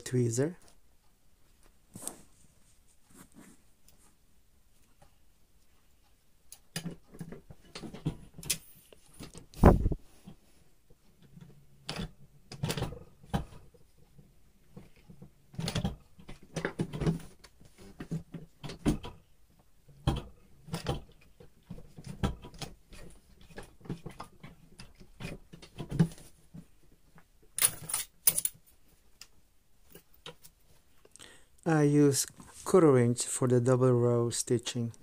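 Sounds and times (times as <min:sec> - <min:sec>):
fabric rustle: 0:01.4 - 0:04.2
light clicks taps and knocks: 0:10.2 - 0:28.6.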